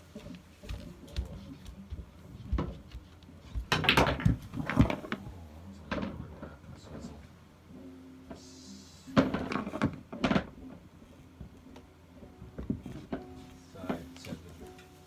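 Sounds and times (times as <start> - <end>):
pool balls clacking: 3.6 - 7.2, 9.1 - 10.8
ball dropping into pocket: 3.7 - 5.2.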